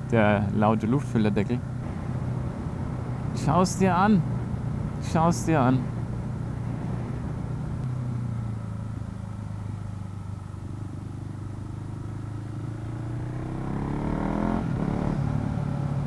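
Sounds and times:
motorcycle engine running: 5.8s - 16.0s.

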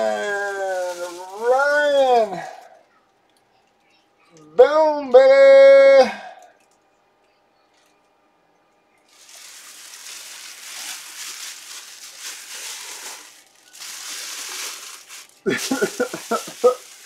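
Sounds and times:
plastic wrapping crinkling: 0.0s - 2.7s, 9.1s - 17.0s.

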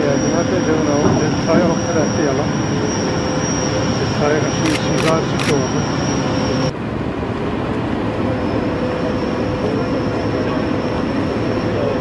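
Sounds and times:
constant high whine: 0.0s - 12.0s.

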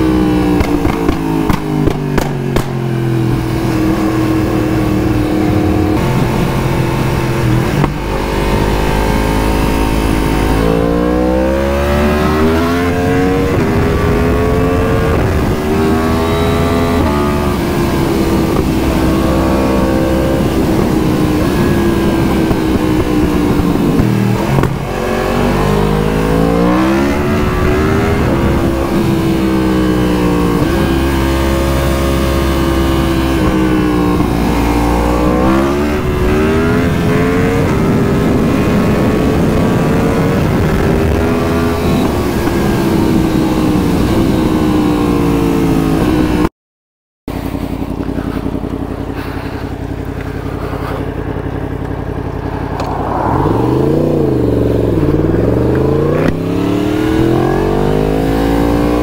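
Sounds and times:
motorcycle engine revving: 0.0s - 46.5s, 47.3s - 59.0s
exhaust pops: 0.6s - 2.8s, 22.4s - 24.9s.

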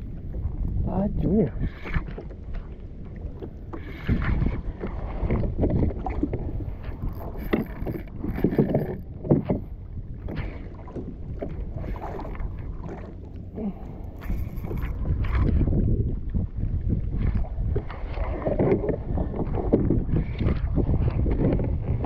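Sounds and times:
water splashing around kayak: 0.0s - 22.0s
wind buffeting microphone: 0.0s - 22.0s.

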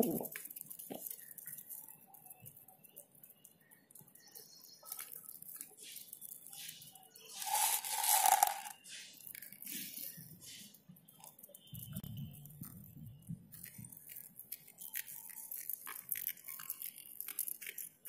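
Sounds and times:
pigeons pecking grain on concrete: 0.0s - 18.0s
loud rustling: 7.3s - 8.7s.

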